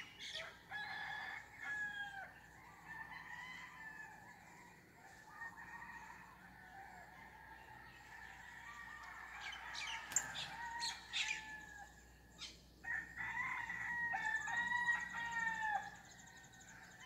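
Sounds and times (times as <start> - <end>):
rooster crowing: 0.4 - 12.0, 12.8 - 17.0
small birds chirping: 7.4 - 12.8, 14.3 - 17.0.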